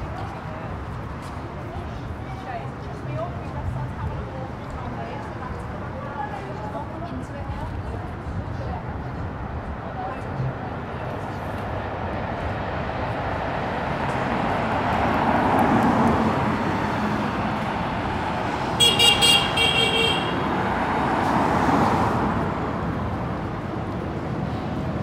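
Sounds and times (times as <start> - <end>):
cars passing: 0.0 - 25.0
vehicle horn short toots: 18.8 - 20.4.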